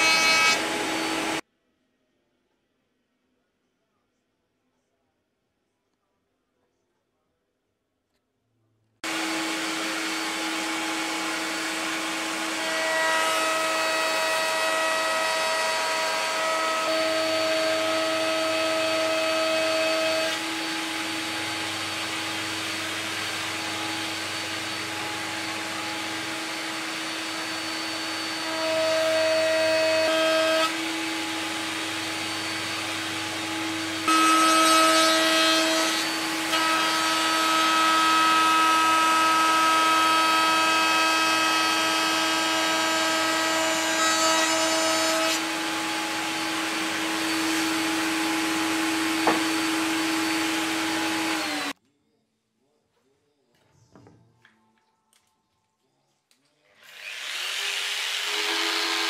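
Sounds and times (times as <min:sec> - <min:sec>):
router whining cutting wood: 0:00.0 - 0:01.4, 0:09.0 - 0:51.8, 0:56.8 - 0:59.0.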